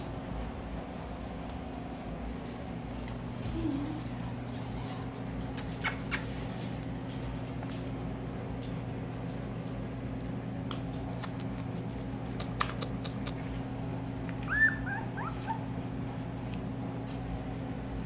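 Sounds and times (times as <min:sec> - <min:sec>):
steady low hum: 0:00.0 - 0:18.0
faint puppy chirps: 0:14.4 - 0:15.7
puppy squeaking: 0:14.4 - 0:15.7.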